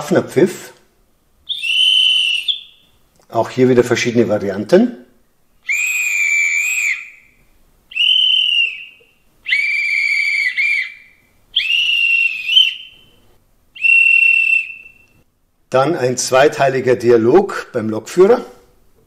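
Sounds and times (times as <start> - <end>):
high whistle blasts: 1.5 - 3.0, 5.6 - 13.2, 13.8 - 15.2.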